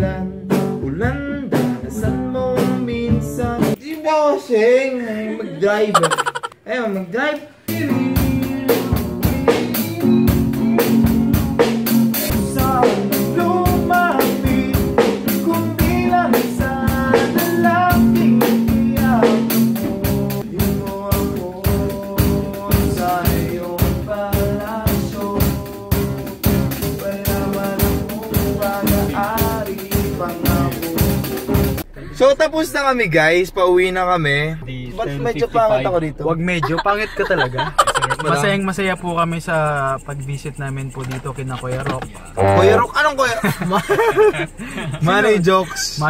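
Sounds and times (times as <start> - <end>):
man singing: 0.0 - 6.4, 7.6 - 32.2, 42.4 - 42.9
snare drum and cymbal beat: 7.8 - 31.8.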